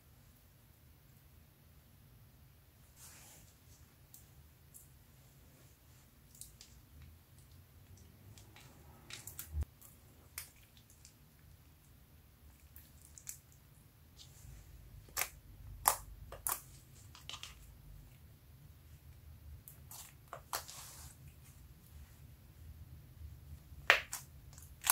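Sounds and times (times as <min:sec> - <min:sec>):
hands squishing sticky slime: 0:06.2 - 0:17.8, 0:19.6 - 0:21.5, 0:23.7 - 0:24.9
wet slime pops and clicks: 0:23.8 - 0:24.9.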